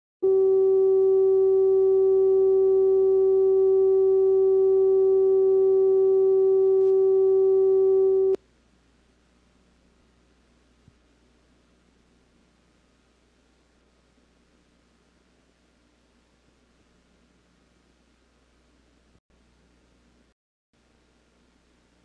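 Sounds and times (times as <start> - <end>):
steady line-up tone: 0.2 - 8.4
faint tape hiss: 8.4 - 22.0.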